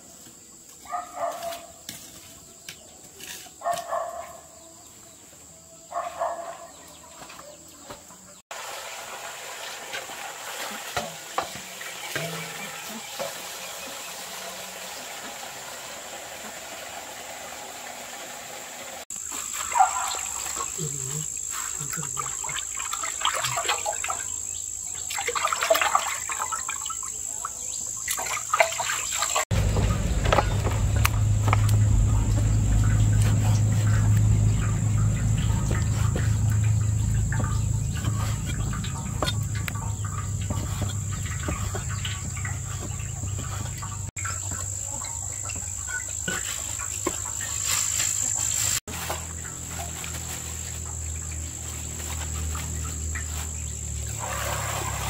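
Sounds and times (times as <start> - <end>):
crickets trilling: 19.1 - 55.0
low rumble: 29.5 - 44.1.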